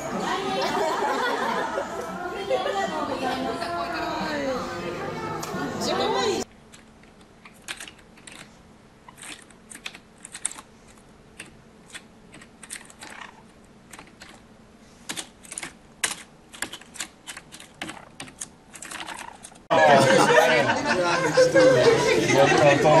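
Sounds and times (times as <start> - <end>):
typing on computer keyboard: 7.4 - 8.5, 9.2 - 10.7, 11.4 - 13.3, 15.1 - 19.6.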